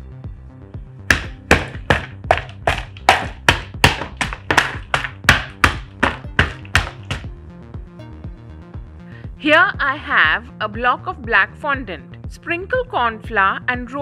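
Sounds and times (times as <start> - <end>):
mallet cracking chocolate shell: 1.1 - 7.3.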